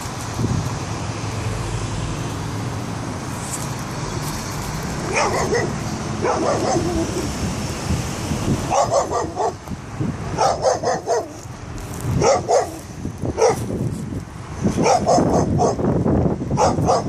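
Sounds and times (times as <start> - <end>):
dog barking: 5.1 - 7.3, 8.7 - 9.6, 10.4 - 11.4, 12.2 - 12.8, 13.4 - 13.7, 14.8 - 15.8, 16.6 - 17.0.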